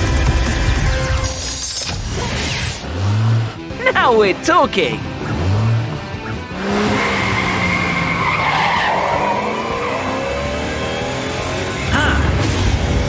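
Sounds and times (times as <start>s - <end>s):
cartoon tyres screeching: 5.2s - 12.8s.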